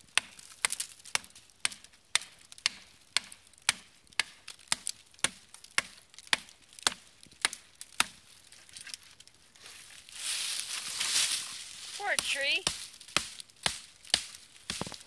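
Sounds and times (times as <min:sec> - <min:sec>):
axe chopping sapling trunk: 0:00.1 - 0:08.2, 0:12.1 - 0:15.0.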